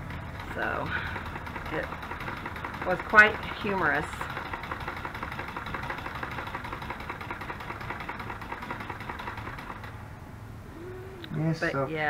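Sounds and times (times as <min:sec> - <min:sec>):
sewing machine stitching: 0:00.4 - 0:10.0.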